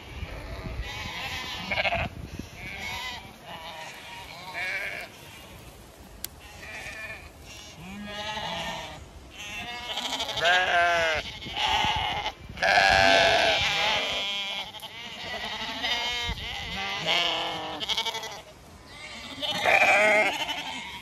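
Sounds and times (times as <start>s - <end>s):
sheep and lambs bleating: 0.0s - 21.0s.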